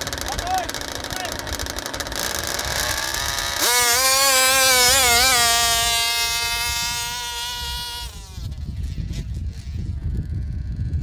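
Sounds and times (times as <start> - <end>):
rc car engine high-pitched scream: 2.2 - 9.3.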